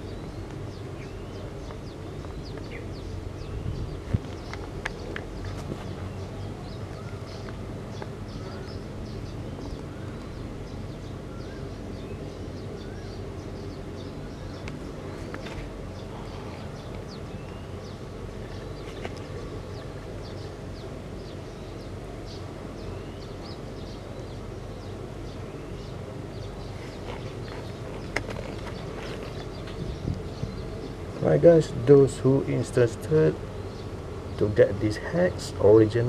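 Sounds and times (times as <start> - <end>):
low outdoor rumble: 0.0 - 36.0
small birds chirping: 0.0 - 36.0.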